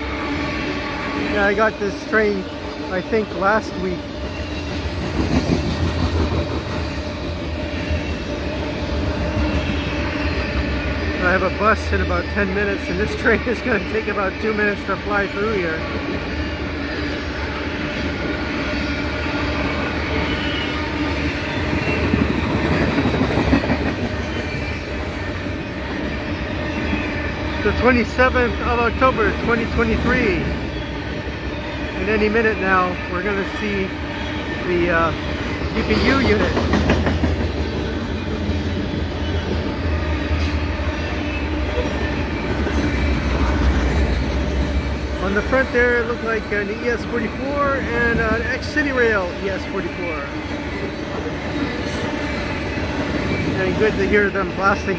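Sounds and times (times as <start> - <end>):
freight train rumble: 0.0 - 54.9
wheels clattering on rails: 4.2 - 11.1, 18.0 - 32.5, 34.5 - 39.7.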